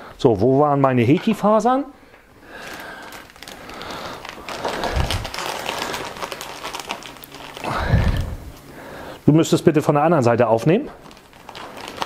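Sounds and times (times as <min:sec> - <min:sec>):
packaging rustling: 0:02.5 - 0:08.8, 0:10.9 - 0:12.0.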